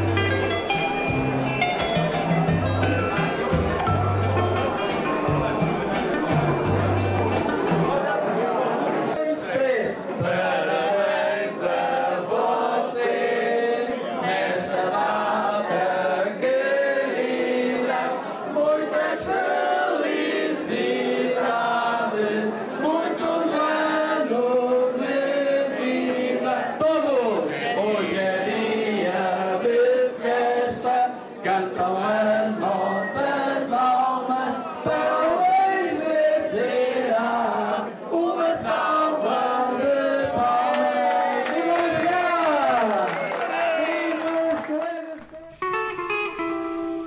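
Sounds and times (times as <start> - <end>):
group singing without instruments: 10.2 - 41.7.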